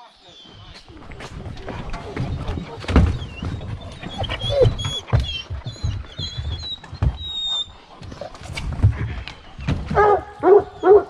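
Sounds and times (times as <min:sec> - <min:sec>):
dogs thumping and scuffling: 0:00.4 - 0:11.0
dog whining: 0:02.0 - 0:08.3.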